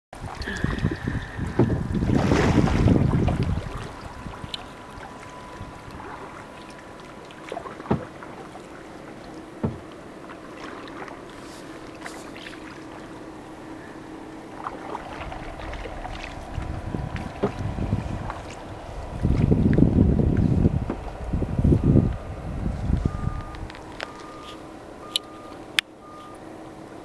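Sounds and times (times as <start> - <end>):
loud rush of water: 0.2 - 19.6
water lapping: 0.2 - 22.0
paddling: 0.2 - 26.5
faint steady hum: 0.2 - 27.0
sharp knocks: 9.6 - 9.8.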